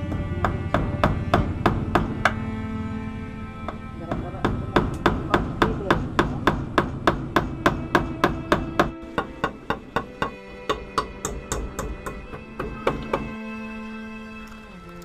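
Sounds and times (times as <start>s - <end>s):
faint background music: 0.0s - 15.0s
hammer driving nails into wood: 3.7s - 13.4s.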